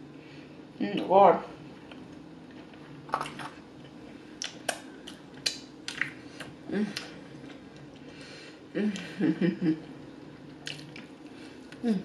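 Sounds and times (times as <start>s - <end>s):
wet lip smacks while chewing: 4.4s - 7.1s
person humming: 6.7s - 7.2s, 8.7s - 9.7s.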